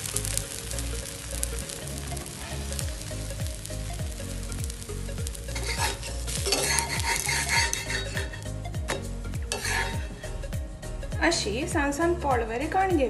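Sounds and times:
food sizzling in oil: 0.0s - 11.4s
background music: 0.0s - 13.0s
metal spatula scraping: 5.5s - 10.4s.

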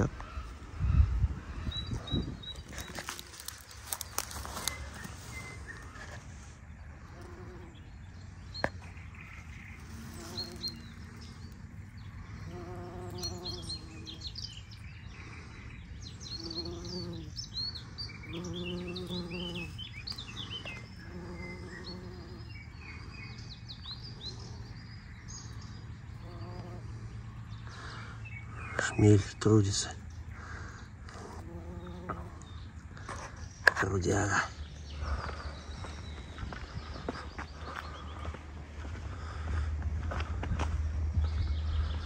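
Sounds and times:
small birds chirping: 0.0s - 42.0s
bumblebee buzzing: 2.6s - 4.8s, 6.9s - 14.7s, 16.1s - 22.7s, 25.6s - 27.3s, 31.1s - 32.5s.

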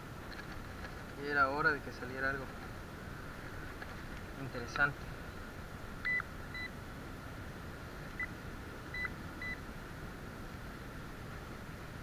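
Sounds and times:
metal detector beeps: 6.0s - 6.7s, 8.9s - 9.6s.

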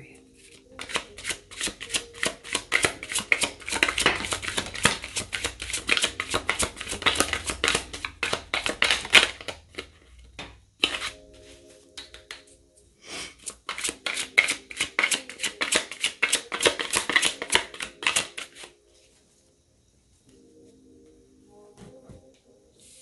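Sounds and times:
cards rustling: 0.4s - 12.4s, 13.3s - 18.8s
cards being shuffled: 0.4s - 12.5s, 13.3s - 18.7s.

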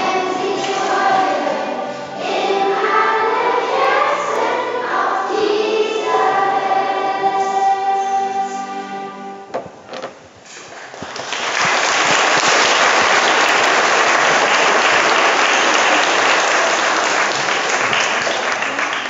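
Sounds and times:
congregation applauding: 10.7s - 19.0s.

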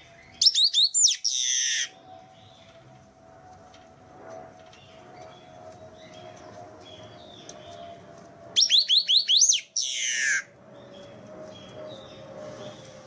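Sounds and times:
steady low hum: 0.0s - 13.0s
marshbird song: 0.1s - 2.8s, 8.6s - 12.8s.

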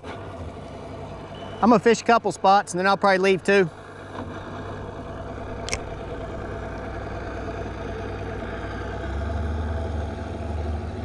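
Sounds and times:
outboard motor running: 0.0s - 11.0s
sharp click: 5.6s - 5.9s.

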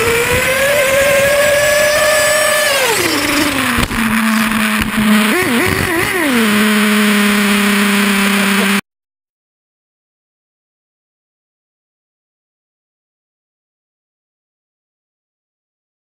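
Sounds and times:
toy motor whining: 0.0s - 8.8s.

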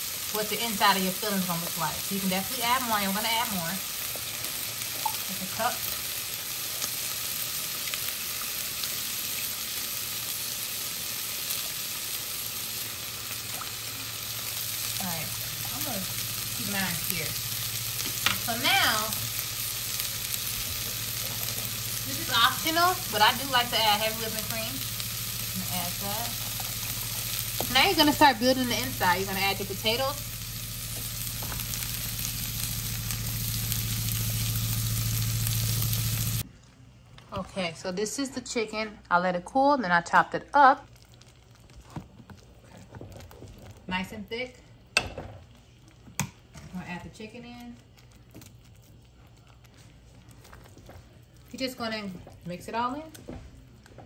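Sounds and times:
gravy sizzling in saucepan: 0.0s - 36.5s, 40.8s - 53.8s
low hum: 13.6s - 36.8s.

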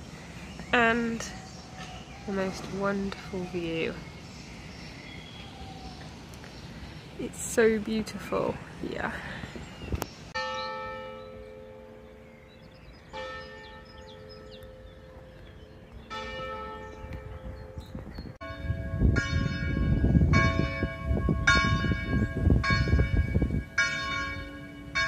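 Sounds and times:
church bell tolling: 10.4s - 12.5s, 13.1s - 25.0s.

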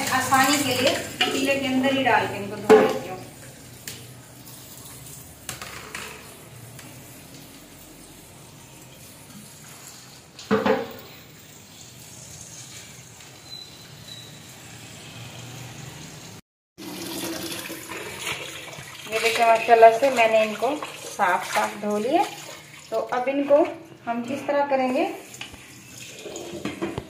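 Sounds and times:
hands stirring in water: 18.0s - 22.8s.

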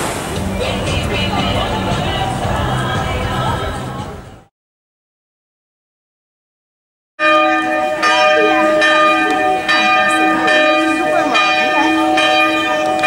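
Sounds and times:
church bells ringing: 7.2s - 13.0s.

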